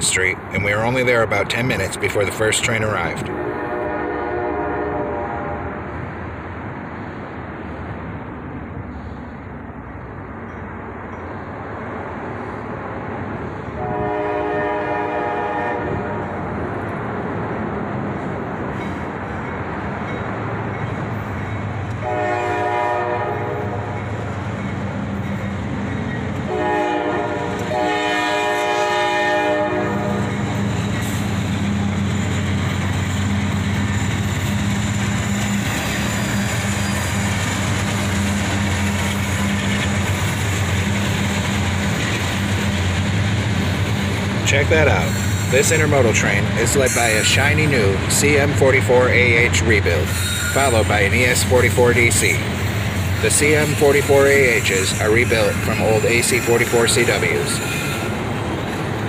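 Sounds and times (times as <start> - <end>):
diesel locomotive engine running: 0.0 - 59.0
locomotive horn blasts: 3.3 - 5.7, 13.8 - 16.4, 21.9 - 24.0, 26.5 - 30.4.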